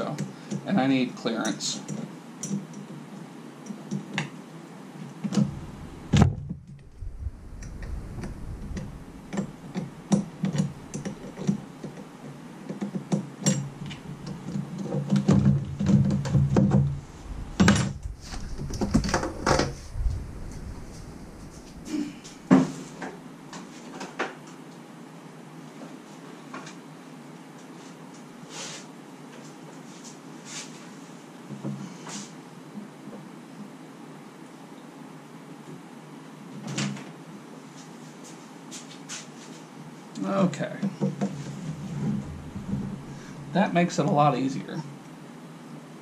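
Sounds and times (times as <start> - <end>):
tools tapping and knocking: 8.8 - 17.0.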